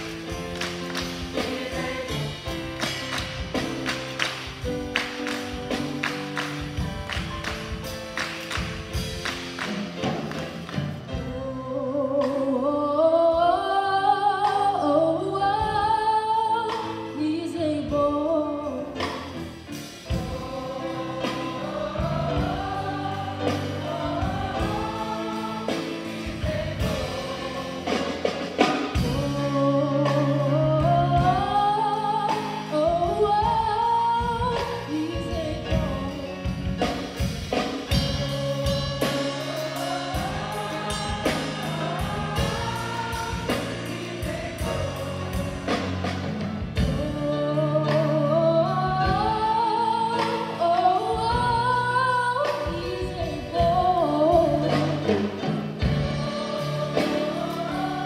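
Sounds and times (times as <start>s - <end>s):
gospel choir singing: 0.0s - 17.2s, 17.8s - 58.0s
drum kit: 0.0s - 58.0s
keyboard: 0.0s - 58.0s.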